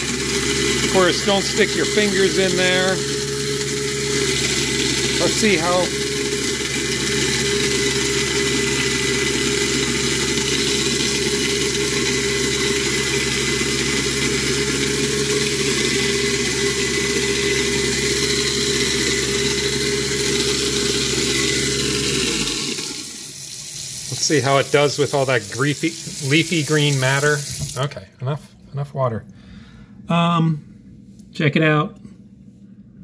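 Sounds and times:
garbage disposal grinding: 0:00.0 - 0:27.9
tap water pouring: 0:22.4 - 0:27.8.

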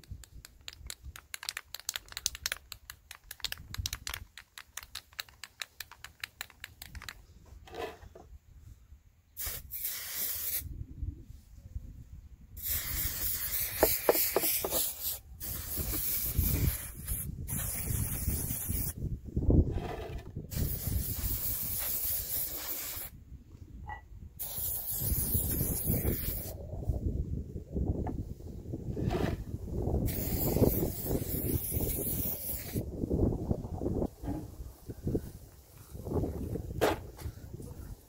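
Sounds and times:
spray can ball rattling: 0:00.0 - 0:07.2, 0:12.6 - 0:18.9, 0:24.4 - 0:26.5, 0:30.1 - 0:32.8
spray paint hissing: 0:00.0 - 0:07.2, 0:09.4 - 0:10.7, 0:12.6 - 0:19.0, 0:20.5 - 0:23.2, 0:24.4 - 0:26.6, 0:30.0 - 0:32.8.

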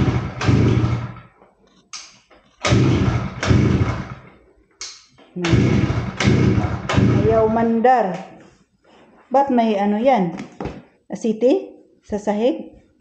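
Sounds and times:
petrol engine cranking: 0:00.0 - 0:01.3, 0:02.5 - 0:04.3, 0:05.4 - 0:07.7.

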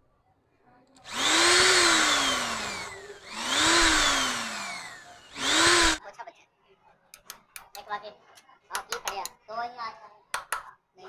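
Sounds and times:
electric drill whining: 0:01.1 - 0:06.0.

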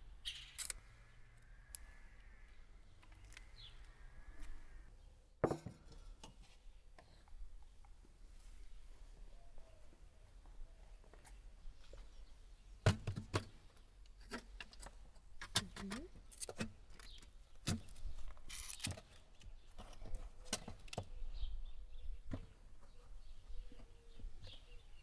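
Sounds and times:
aluminium foil rustling: 0:18.3 - 0:19.2.

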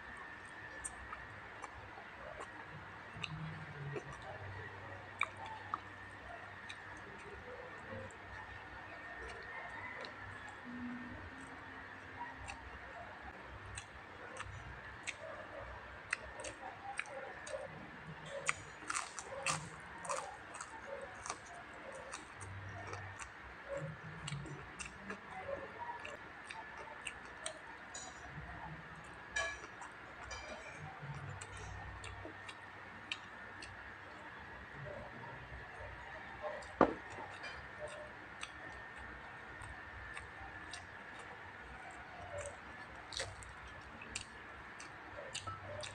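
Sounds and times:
close-up chewing: 0:00.2 - 0:45.9
glass mug knocking on wood: 0:36.8 - 0:37.0.

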